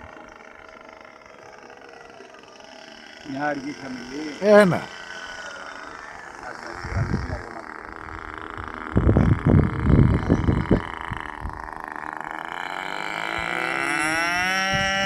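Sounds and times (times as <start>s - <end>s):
model plane motor droning: 0.0s - 15.0s
wind buffeting microphone: 6.4s - 12.0s, 14.4s - 15.0s.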